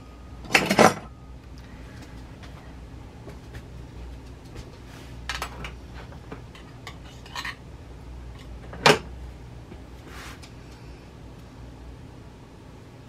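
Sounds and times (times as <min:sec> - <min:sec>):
low steady hum: 0:00.0 - 0:13.0
metal kitchenware clinking: 0:06.5 - 0:07.6.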